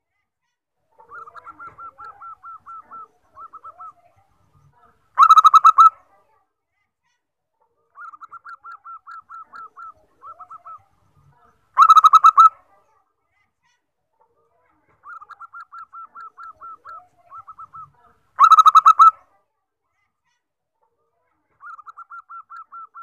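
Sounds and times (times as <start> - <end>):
dove cooing: 1.0 - 4.1, 8.0 - 10.9, 15.0 - 19.1, 21.6 - 23.0.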